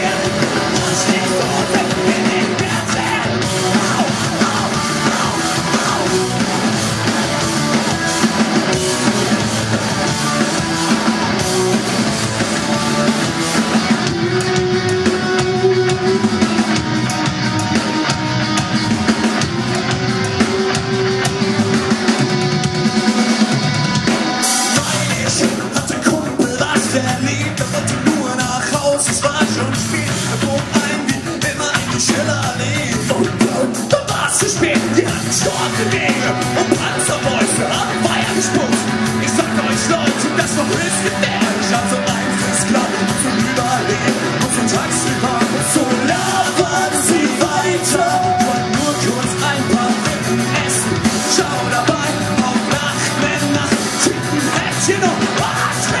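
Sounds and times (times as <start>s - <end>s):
person singing: 0.0s - 9.2s, 24.5s - 56.0s
punk rock band playing live: 0.0s - 56.0s.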